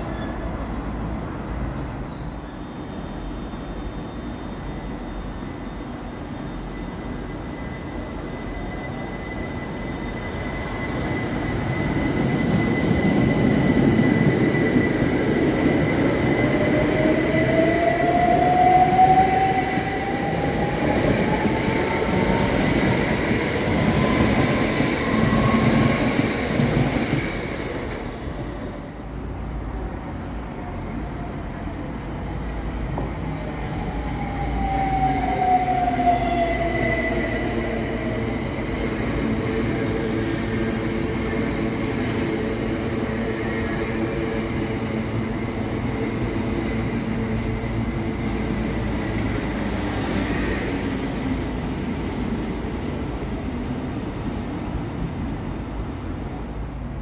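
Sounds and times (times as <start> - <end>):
steady high whistle: 2.9 - 26.2.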